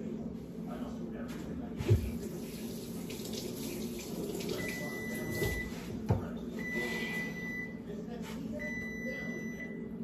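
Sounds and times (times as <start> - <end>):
faucet running into a sink: 2.2 - 5.6.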